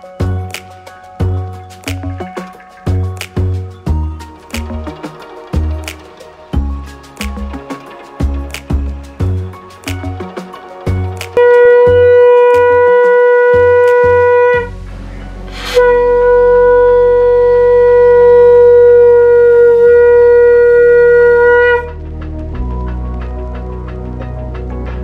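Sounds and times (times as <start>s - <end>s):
conch shell blasts: 11.4s - 14.8s, 15.5s - 22.0s.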